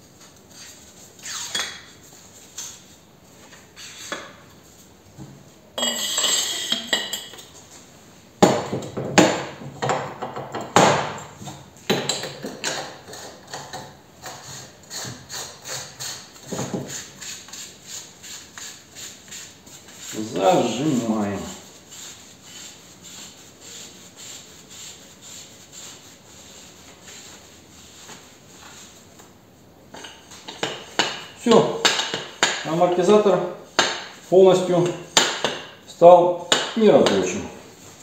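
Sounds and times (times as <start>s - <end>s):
scraping rub: 3.7s - 4.3s, 14.2s - 29.1s.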